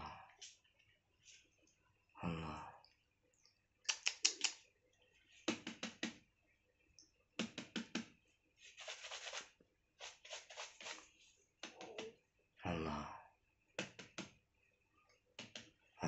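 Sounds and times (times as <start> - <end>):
clusters of sharp clicks: 3.8 - 4.6.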